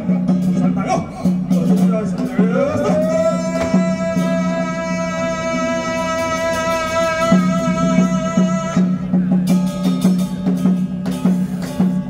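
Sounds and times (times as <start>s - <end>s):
light percussion: 0.0s - 12.0s
long held sliding note: 2.8s - 9.2s.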